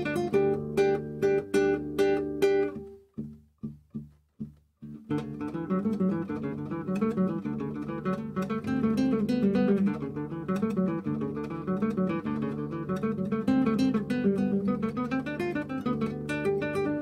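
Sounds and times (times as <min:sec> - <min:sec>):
acoustic guitar plucked and strummed: 0:00.0 - 0:17.0.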